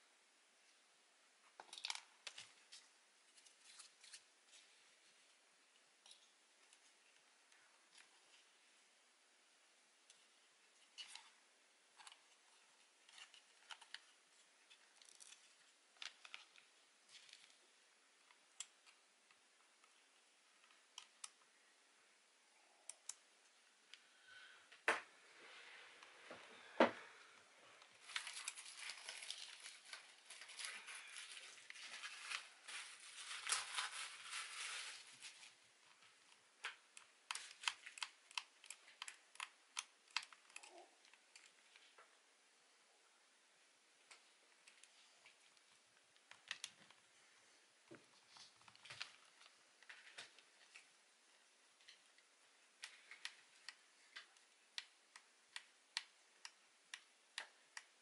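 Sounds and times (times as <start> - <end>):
small plastic parts clicking: 36.3 - 41.6.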